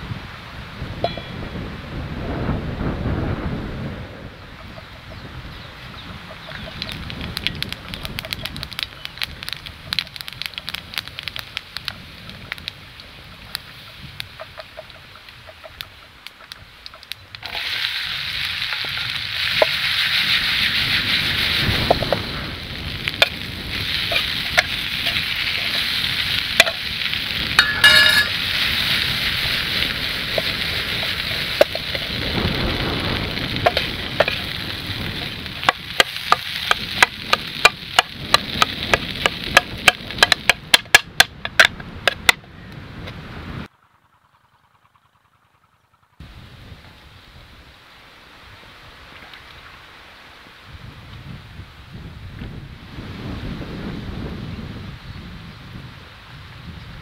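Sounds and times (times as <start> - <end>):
potatoes sizzling in hot oil: 5.9 - 15.7, 16.9 - 40.5.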